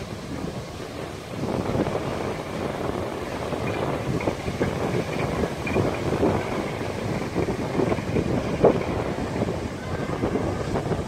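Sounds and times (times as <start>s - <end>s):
barge rumble: 0.0s - 11.0s
bow wave surging against shore: 0.0s - 11.0s.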